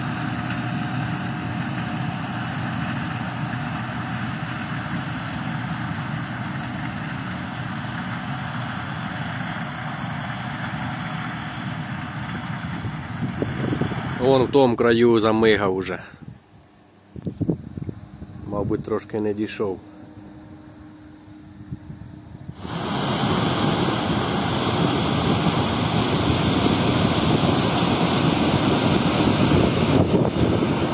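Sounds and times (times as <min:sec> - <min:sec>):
combine harvester hum: 0:00.0 - 0:30.9
noisy hiss: 0:22.2 - 0:30.9.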